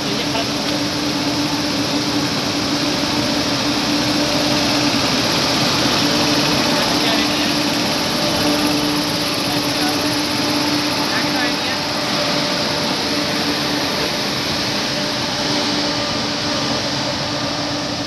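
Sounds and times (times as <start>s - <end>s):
electric locomotive droning: 0.0s - 18.0s.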